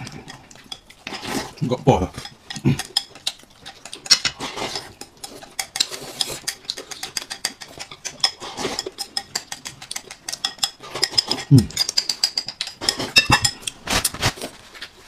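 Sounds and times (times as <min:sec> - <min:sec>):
slurping: 0:00.0 - 0:14.1
crackly chewing: 0:00.0 - 0:15.0
chopsticks clicking on bowl: 0:05.0 - 0:13.8.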